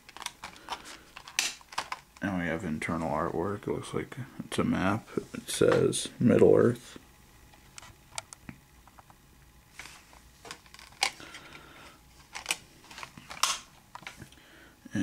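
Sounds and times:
plastic rubbing and scraping: 0:09.8 - 0:11.6.

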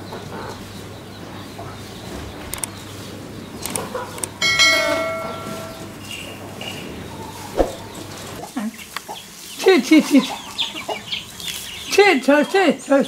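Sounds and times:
light clicks: 0:02.5 - 0:02.7, 0:03.6 - 0:04.4
metal bell ringing: 0:04.4 - 0:06.3.

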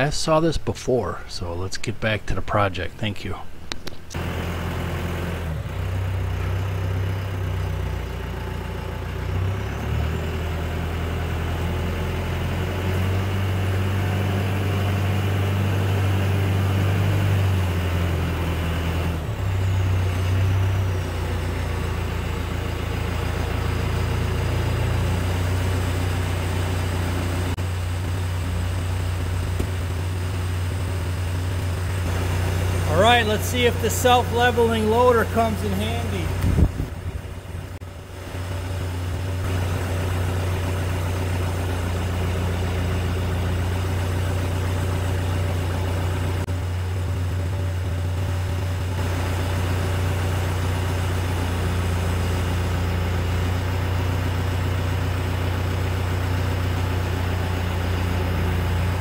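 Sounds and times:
tractor diesel engine humming: 0:00.0 - 0:59.0.

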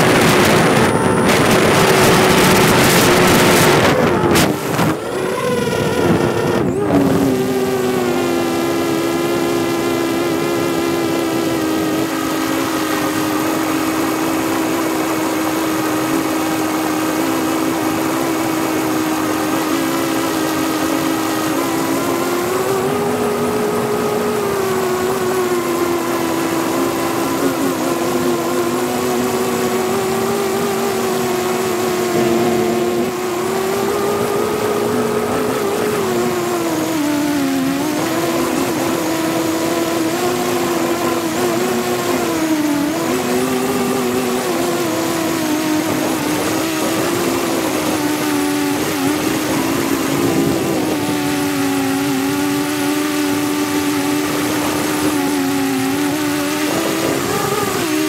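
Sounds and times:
drone propellers whining: 0:00.0 - 0:58.0.

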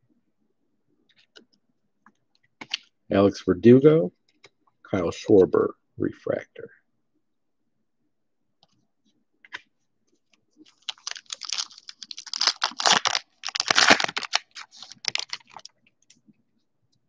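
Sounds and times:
foil pack tearing and crinkling: 0:10.7 - 0:15.7.

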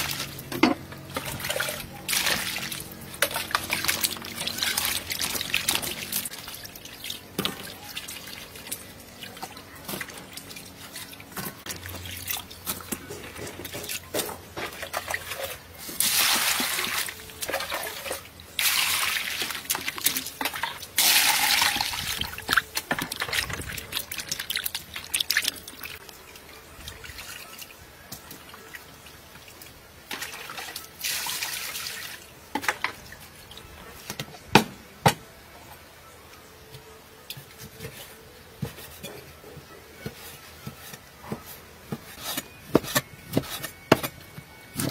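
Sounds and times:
water sloshing and splashing: 0:00.0 - 0:33.7.

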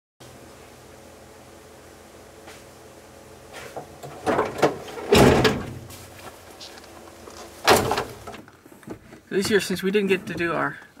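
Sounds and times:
heavy thud: 0:04.2 - 0:06.0, 0:07.6 - 0:08.3.

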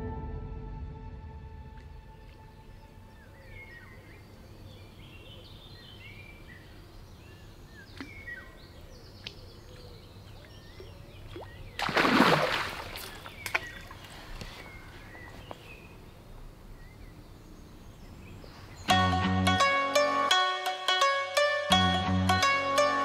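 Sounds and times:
birds chirping: 0:01.9 - 0:19.2
fish splash on water: 0:11.3 - 0:14.1.

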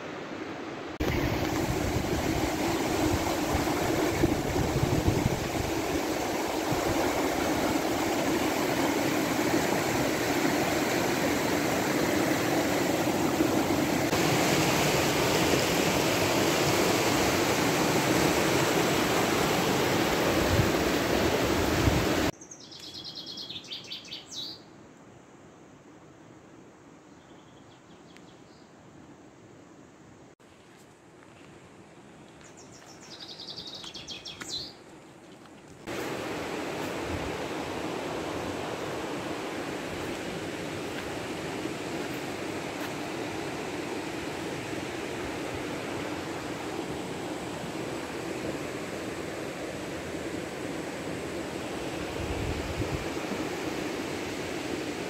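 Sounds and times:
water rushing over gravel: 0:01.0 - 0:22.3, 0:35.9 - 0:55.0
birds chirping: 0:32.3 - 0:34.8.

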